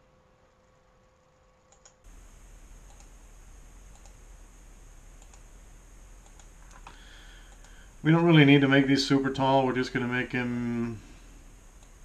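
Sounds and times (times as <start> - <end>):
room hiss: 0.0 - 12.0
computer clicks: 1.7 - 8.0
low hum: 2.1 - 12.0.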